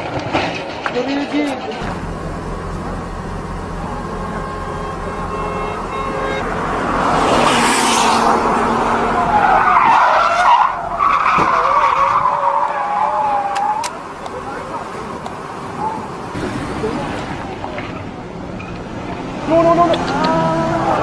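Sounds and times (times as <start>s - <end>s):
tyres screeching: 0.0s - 21.0s
car engine revving high: 1.8s - 11.1s.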